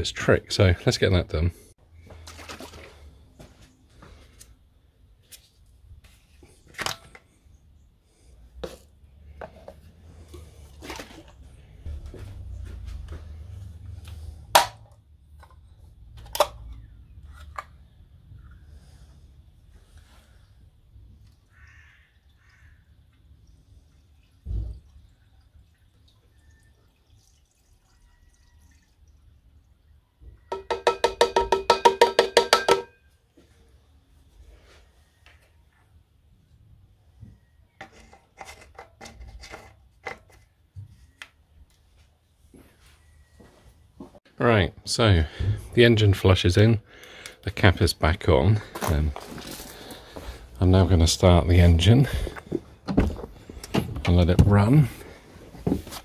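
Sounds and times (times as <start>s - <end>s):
metal can glugging liquid: 2.2s - 3.0s
oil cap clicks and knocks: 30.5s - 32.9s.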